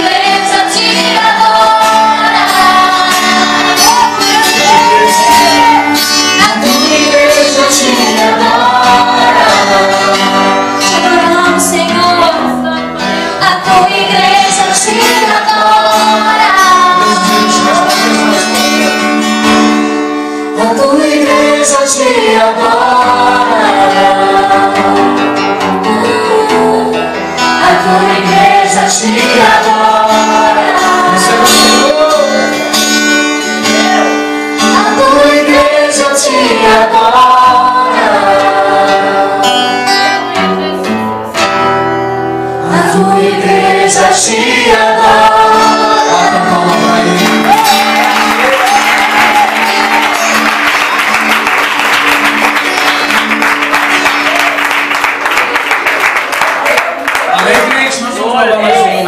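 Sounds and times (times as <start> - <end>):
woman singing into microphone: 0.0 - 19.0, 20.6 - 32.4, 33.8 - 40.5, 42.6 - 47.7
acoustic guitar: 0.0 - 59.0.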